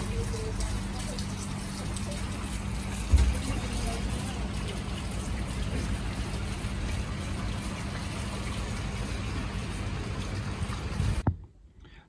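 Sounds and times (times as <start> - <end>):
heavy rain on tarmac: 0.0 - 11.3.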